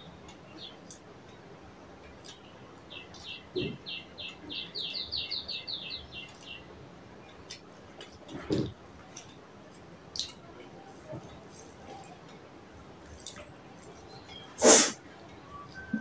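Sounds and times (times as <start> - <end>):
bird chirping: 2.2 - 6.7, 13.2 - 14.6.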